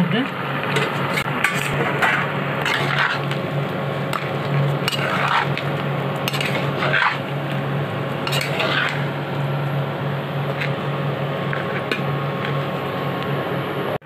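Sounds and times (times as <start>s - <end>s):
steady low hum: 0.0s - 14.0s
spatula scraping in pan: 0.7s - 9.2s.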